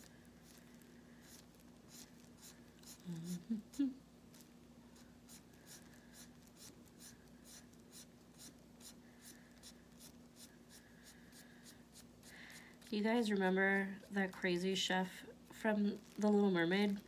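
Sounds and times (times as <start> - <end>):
marker scratching on paper: 1.2 - 3.0, 5.0 - 13.1.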